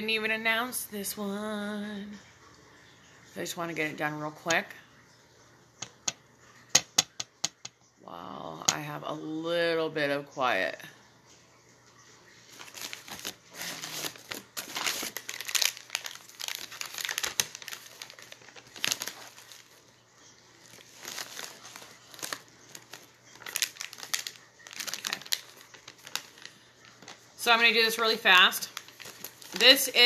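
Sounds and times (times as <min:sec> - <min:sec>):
packaging crinkling: 0:12.5 - 0:30.0.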